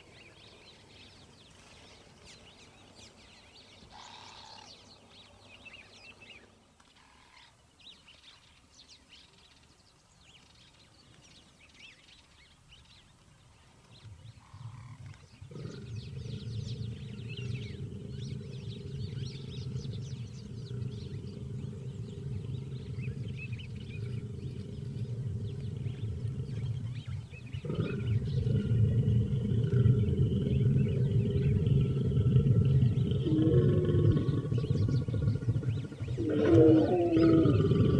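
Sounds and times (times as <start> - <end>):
small birds chirping: 0.0 - 37.9
lion growling: 15.4 - 37.9.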